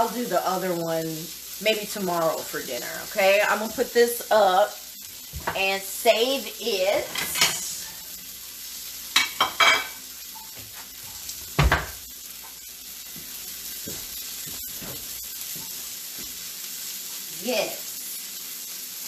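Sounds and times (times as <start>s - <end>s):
chicken sizzling in a pan: 0.0s - 19.0s
knock: 11.6s - 12.0s.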